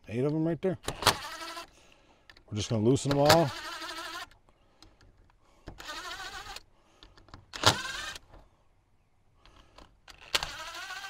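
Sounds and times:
cordless drill whining: 0.9s - 2.4s, 3.1s - 5.0s, 5.6s - 8.4s, 9.5s - 11.0s.

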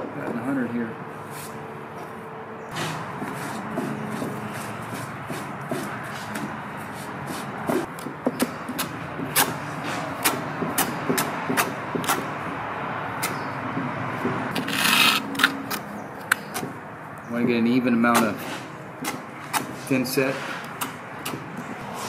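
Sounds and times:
trowel scraping: 2.7s - 7.9s, 14.5s - 15.9s, 18.1s - 20.8s.

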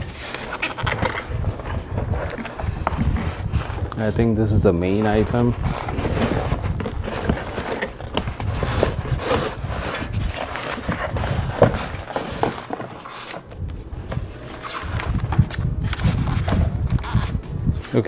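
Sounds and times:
cardboard flaps handled: 0.0s - 4.2s, 4.8s - 18.0s
foam scraping against cardboard: 4.8s - 13.4s.

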